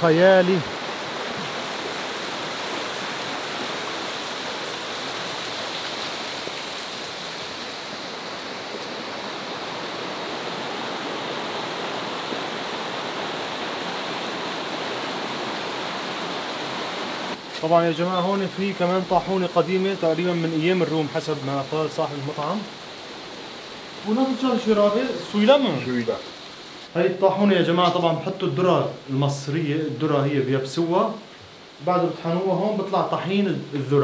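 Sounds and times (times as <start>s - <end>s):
river water rushing: 0.0s - 33.7s.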